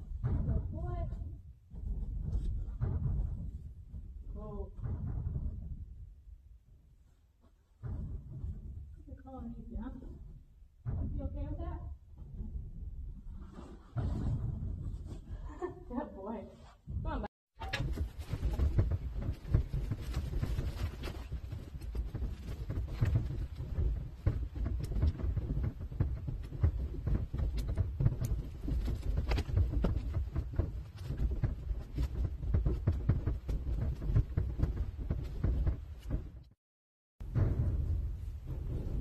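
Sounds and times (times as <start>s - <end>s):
low rumble on microphone: 0.0s - 15.9s, 16.5s - 36.6s, 37.2s - 39.0s
mule hoof steps: 0.0s - 36.5s.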